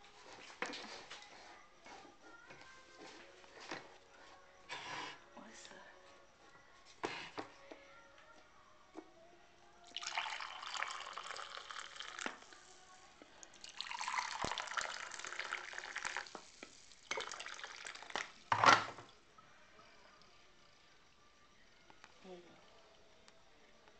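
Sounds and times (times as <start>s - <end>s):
coffee pouring into mug: 9.8s - 19.2s.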